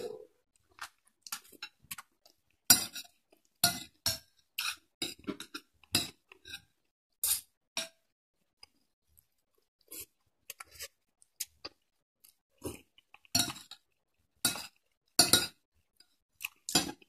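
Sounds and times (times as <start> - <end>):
cutlery clinking on glass bowl: 14.5 - 15.6.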